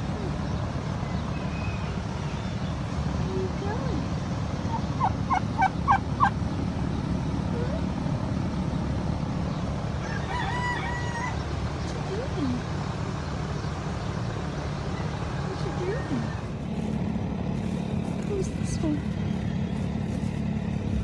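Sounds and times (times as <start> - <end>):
turkey hen yelping: 4.7 - 6.4.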